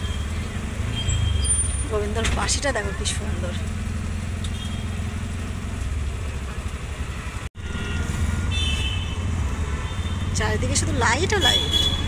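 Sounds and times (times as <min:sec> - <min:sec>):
vehicle engine idling: 0:00.0 - 0:07.4.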